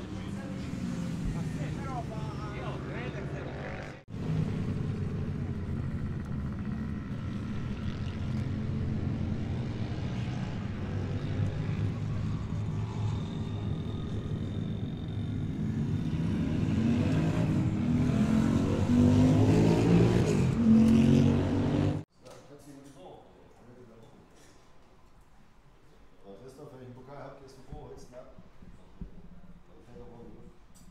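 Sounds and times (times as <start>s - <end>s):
two-stroke engine revving: 0.0s - 22.0s.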